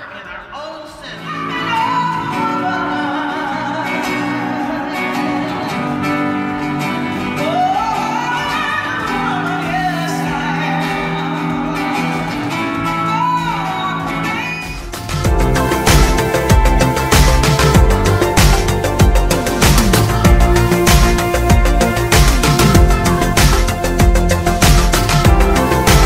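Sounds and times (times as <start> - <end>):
woman singing: 0.0 - 6.6, 7.2 - 15.2
acoustic guitar strumming: 1.1 - 26.0.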